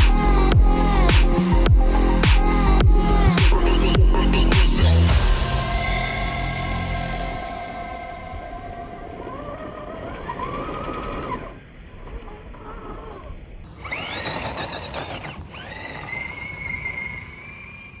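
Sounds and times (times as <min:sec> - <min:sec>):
toy car electric motor whining: 0:08.3 - 0:18.0.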